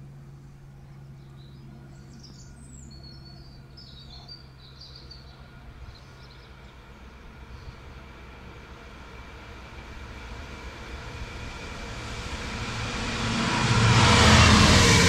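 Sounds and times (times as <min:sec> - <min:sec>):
distant diesel locomotive rumble: 0:00.0 - 0:15.0
small birds chirping: 0:01.0 - 0:06.8.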